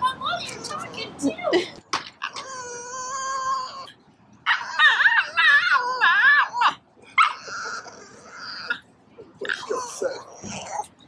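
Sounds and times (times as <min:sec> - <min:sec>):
dog whining and crying: 0:02.2 - 0:11.0.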